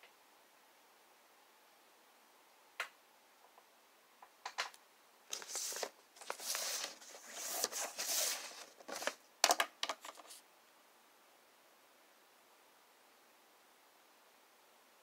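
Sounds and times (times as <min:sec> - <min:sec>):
paper rustling and sliding: 0:05.3 - 0:09.2, 0:09.9 - 0:10.4
clicks and taps: 0:09.4 - 0:10.3.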